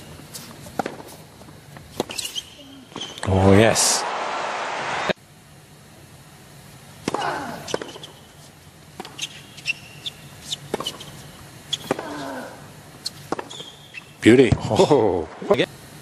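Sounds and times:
low stadium hum: 0:00.0 - 0:16.0
racket hitting tennis ball: 0:00.8 - 0:01.2, 0:11.7 - 0:12.2, 0:13.3 - 0:13.7.

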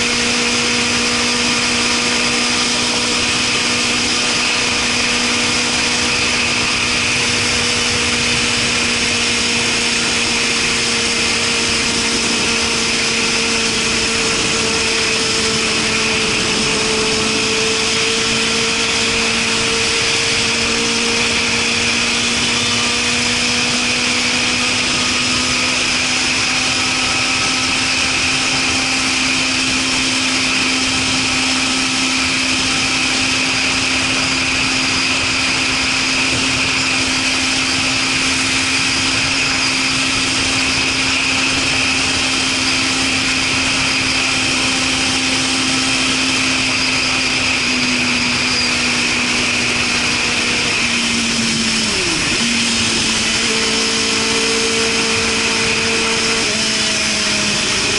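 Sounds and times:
motorcycle engine: 0:00.0 - 0:57.9.

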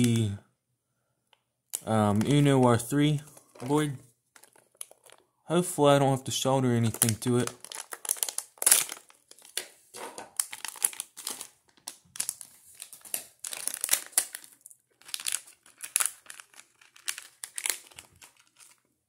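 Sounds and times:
plastic bag crinkling: 0:03.2 - 0:05.3, 0:06.8 - 0:18.9.

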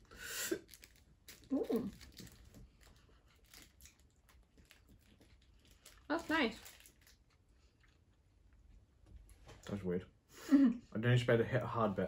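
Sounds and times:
foil wrapper crinkling: 0:00.0 - 0:07.8.

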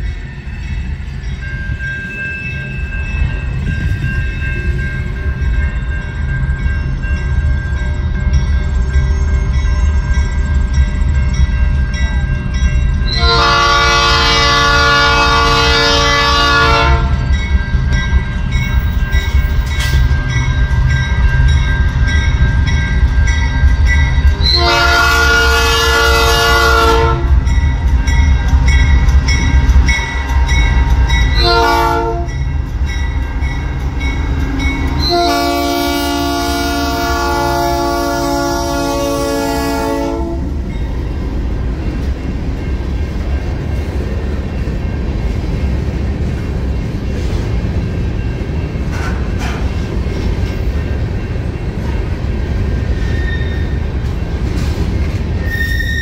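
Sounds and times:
train engine and wheel rumble: 0:00.0 - 0:56.0
locomotive horn blasts: 0:13.1 - 0:17.2, 0:24.4 - 0:27.4, 0:31.4 - 0:32.4, 0:35.0 - 0:40.6.

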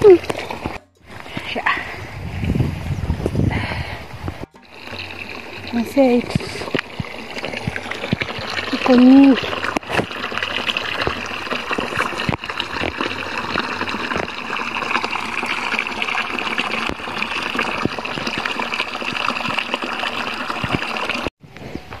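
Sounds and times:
water trickling onto rock: 0:04.6 - 0:21.3.

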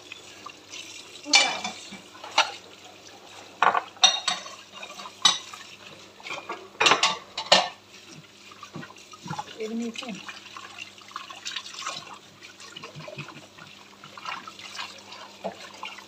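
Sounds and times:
tap running: 0:03.6 - 0:04.5, 0:05.2 - 0:10.2
dishes and glasses clinking: 0:03.6 - 0:05.5, 0:06.3 - 0:07.8.

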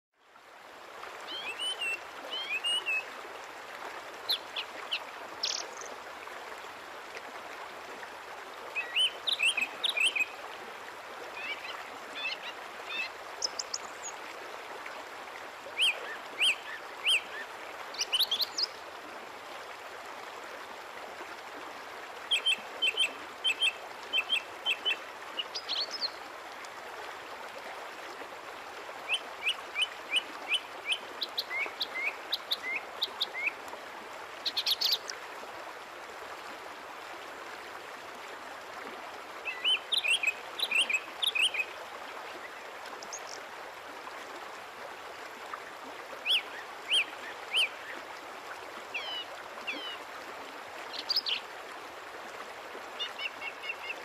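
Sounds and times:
outdoor background hiss: 0:00.2 - 0:54.0.

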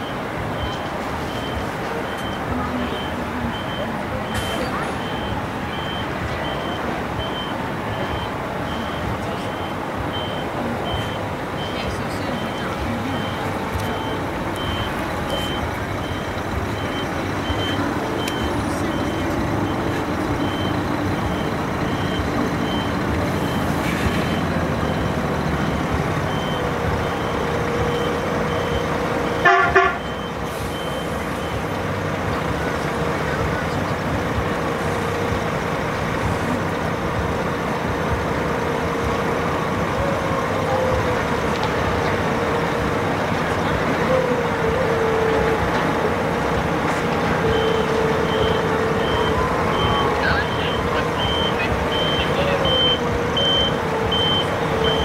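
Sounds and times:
reversing alarm beeping: 0:00.0 - 0:32.1, 0:43.6 - 0:55.0
coach engine running: 0:00.0 - 0:55.0
vehicle horn toot: 0:29.4 - 0:30.2.

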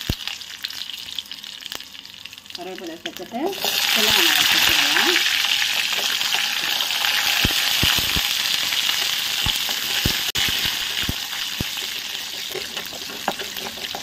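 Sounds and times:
shallots sizzling in hot oil: 0:00.0 - 0:14.0
wooden spatula knocking pan: 0:11.8 - 0:14.0.

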